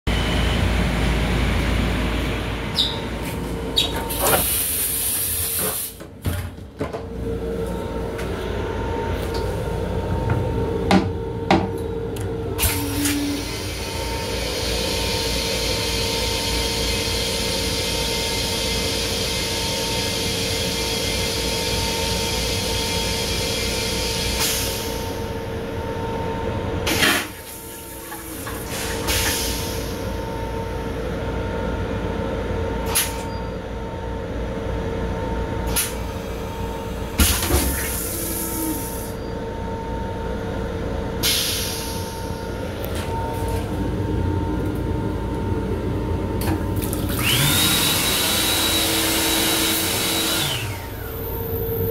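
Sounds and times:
moving train rumble: 0.1 - 27.0.

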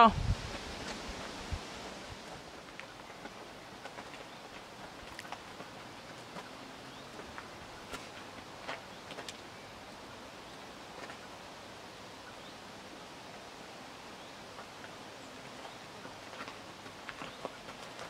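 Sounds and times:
faint outdoor background hiss: 0.0 - 18.0
footsteps on gravel: 0.5 - 9.4, 15.6 - 18.0.

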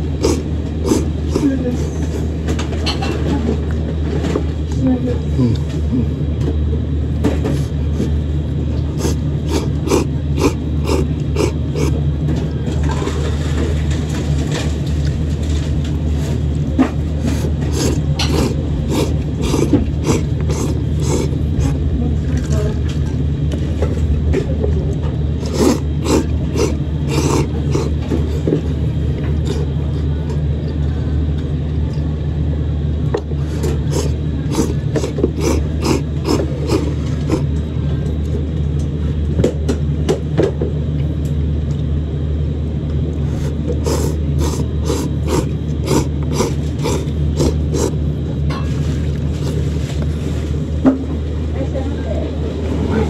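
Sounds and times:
man slurping noodles: 0.0 - 2.1, 8.9 - 12.0, 17.2 - 21.8, 25.4 - 28.5, 29.4 - 29.8, 33.4 - 37.5, 43.2 - 48.0
steady low hum: 0.0 - 53.0.

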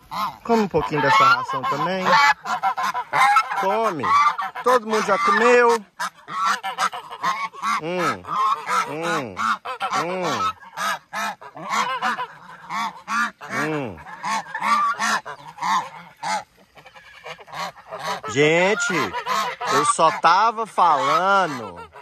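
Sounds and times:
geese honking: 0.0 - 22.0.

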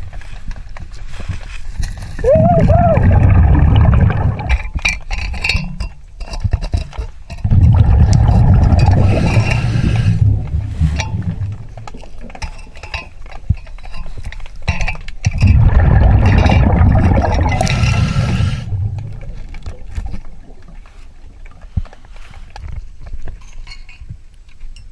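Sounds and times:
diver exhaling bubbles: 2.2 - 4.7, 7.4 - 12.4, 15.4 - 20.9
regulator inhalations: 8.9 - 11.2, 17.6 - 18.9.

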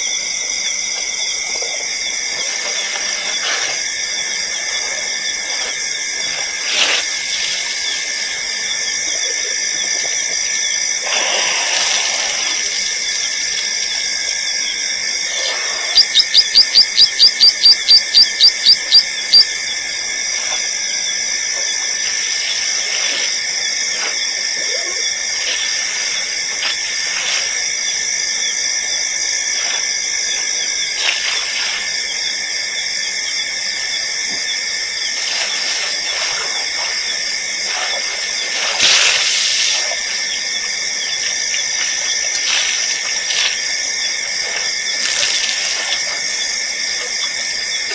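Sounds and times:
insects trilling: 0.0 - 47.9
sharp high chirps: 15.9 - 19.5.

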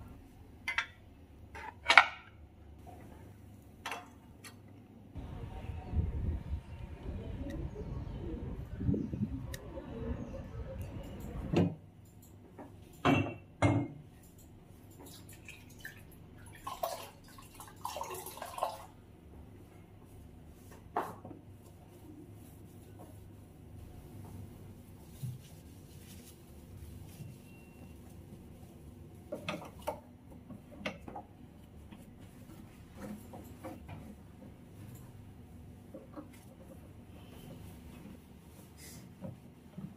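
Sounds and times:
low outdoor rumble: 5.2 - 11.6.

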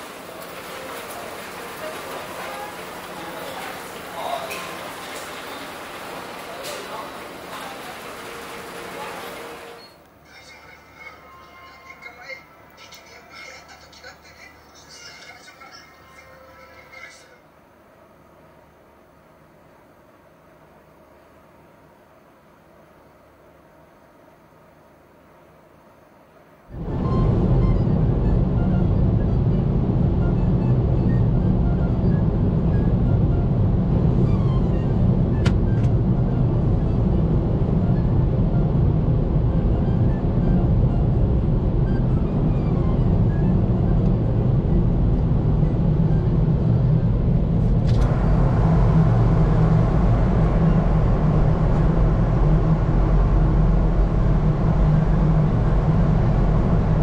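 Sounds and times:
vehicle rumble in motion: 26.7 - 57.0.

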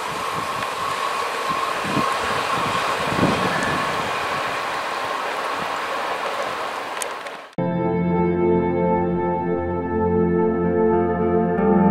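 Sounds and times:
high ringing tone: 0.0 - 5.4
train wheels rumbling on rails: 0.0 - 7.6.

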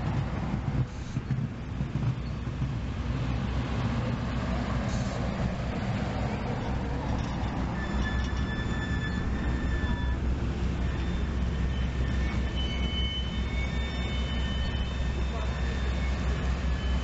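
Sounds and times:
train wheels rumbling on rails: 0.0 - 17.0
high wheel squeal: 6.3 - 17.0.

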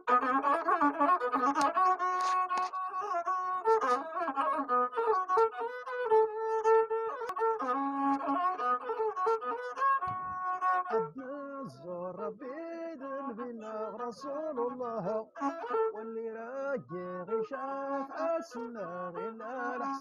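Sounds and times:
bowed one-string fiddle: 0.0 - 20.0.

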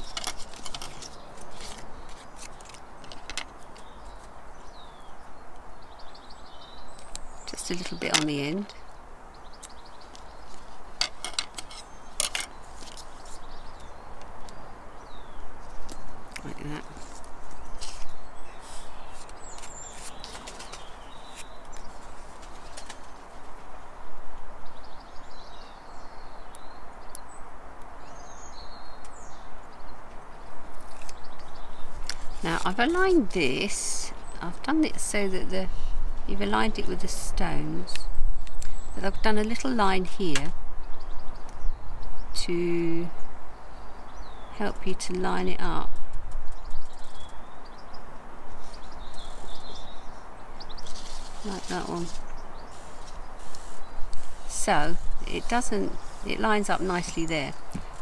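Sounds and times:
paper and tape crackling: 0.0 - 4.3, 15.9 - 23.2, 50.8 - 57.2
bird chirping: 0.0 - 23.6, 24.6 - 58.0
steady hiss: 50.8 - 58.0.

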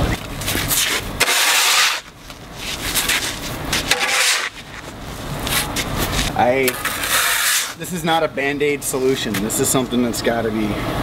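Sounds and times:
tool scraping mud across pavement: 0.4 - 4.9, 5.5 - 7.8.

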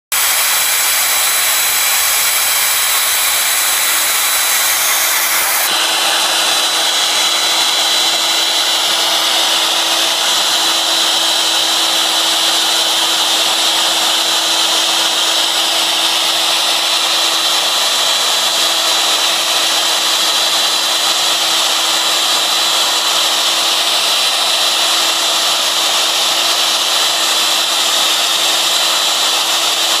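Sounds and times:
bit cutting wood hiss: 0.1 - 5.8
router spindle whine: 0.1 - 30.0.

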